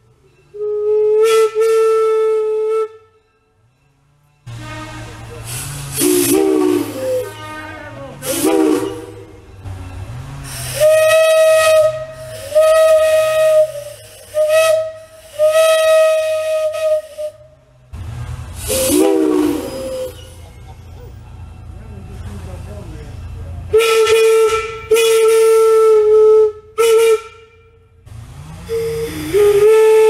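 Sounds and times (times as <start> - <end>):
hiss of escaping air: 5.4 - 7.0, 12.1 - 13.0, 13.6 - 15.6.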